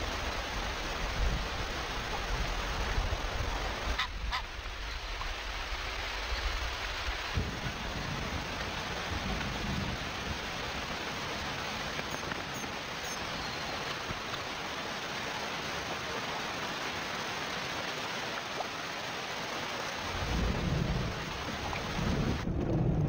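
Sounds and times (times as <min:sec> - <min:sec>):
heavy rain on river: 0:00.0 - 0:23.0
thunder rumble: 0:05.0 - 0:11.7, 0:20.0 - 0:23.0.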